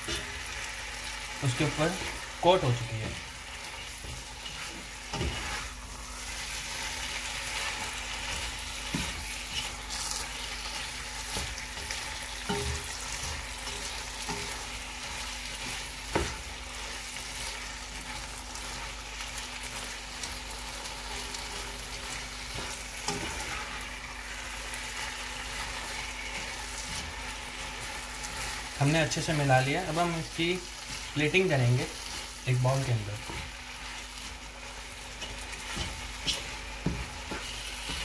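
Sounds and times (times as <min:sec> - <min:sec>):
food sizzling in a pot: 0:00.0 - 0:38.0.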